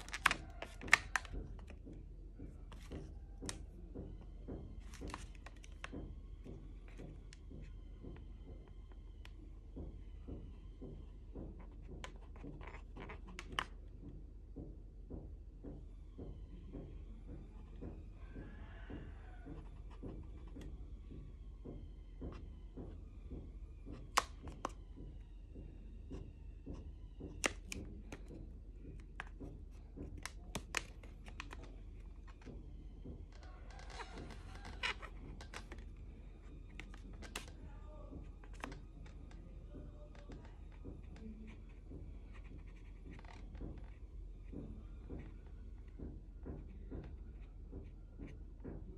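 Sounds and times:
marker ticking on balloon: 21.6s - 39.4s, 40.1s - 48.8s.

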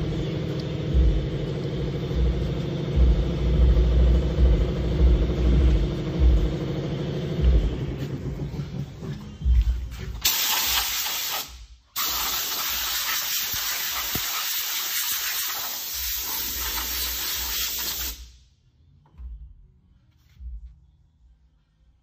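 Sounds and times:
compressed air hissing: 10.2s - 18.5s.

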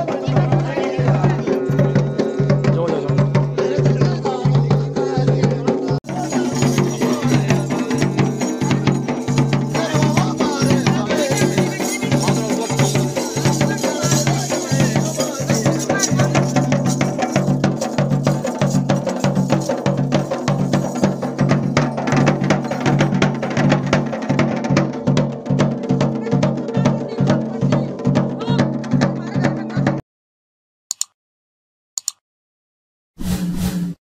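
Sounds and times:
drum beaten with stick: 0.0s - 30.0s
short electronic clicks: 32.0s - 32.2s.

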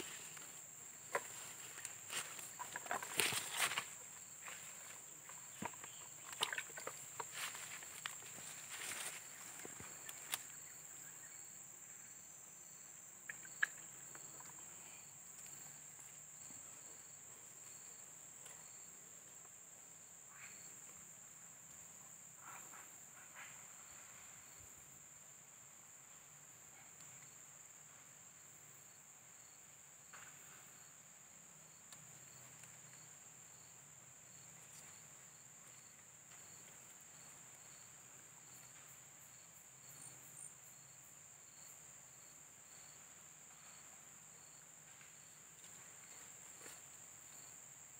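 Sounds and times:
soft rustles: 0.0s - 10.5s.

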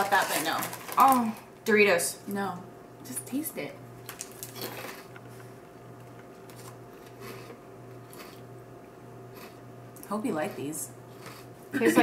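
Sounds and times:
low room hum: 0.0s - 12.0s
faint crunching chewing: 4.1s - 5.4s, 6.1s - 8.5s, 9.3s - 11.7s.

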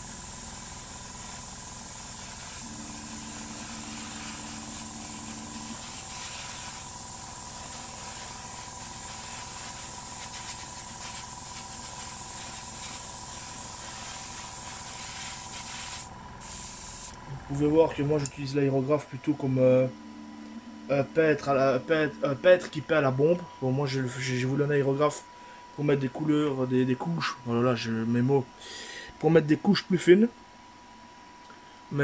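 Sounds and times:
airbrush hissing: 0.0s - 17.2s
air compressor humming: 0.0s - 23.6s.

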